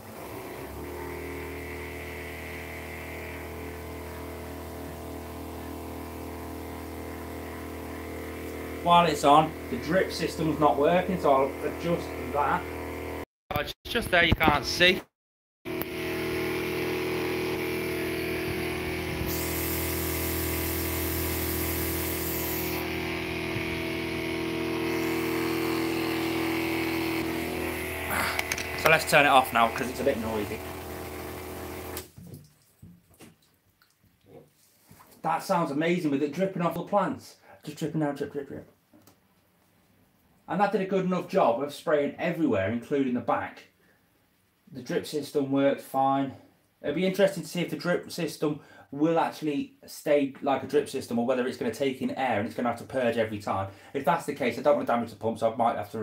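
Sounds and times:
pump humming: 0.0s - 13.2s, 15.7s - 32.1s
misting nozzles hissing: 19.2s - 22.9s
water hissing from spray nozzles: 19.2s - 22.9s, 28.1s - 32.0s.

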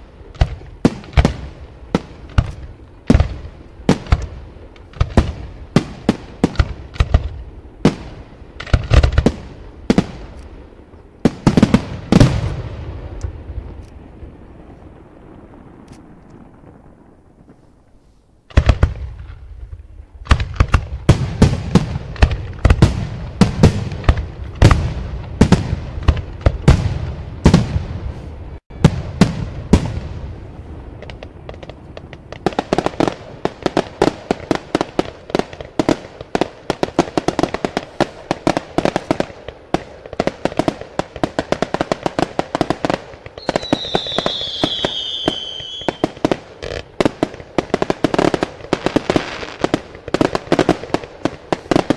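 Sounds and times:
fireworks popping and crackling: 0.0s - 17.8s, 18.5s - 51.9s
falling firework whistle: 43.4s - 46.2s.

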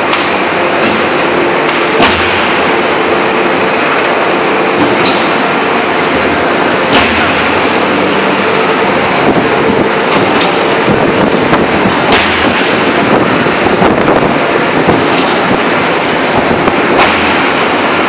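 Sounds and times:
forging press industrial din: 0.0s - 18.0s.

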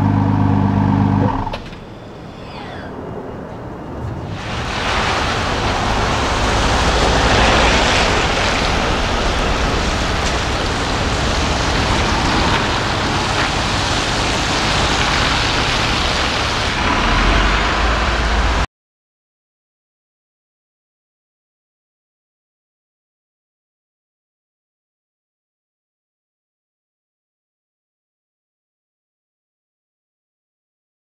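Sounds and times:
car rushing past at speed: 4.3s - 13.6s.

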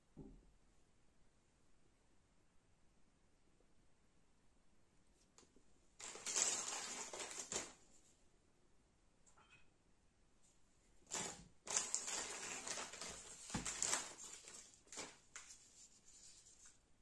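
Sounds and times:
plastic bag crinkling: 6.0s - 7.8s, 11.0s - 15.7s.

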